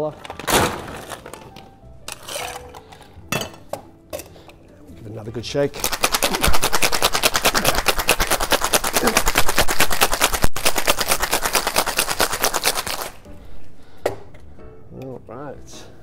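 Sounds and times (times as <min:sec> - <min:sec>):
ice rattling in cocktail shaker: 0:02.1 - 0:02.8, 0:05.7 - 0:13.2.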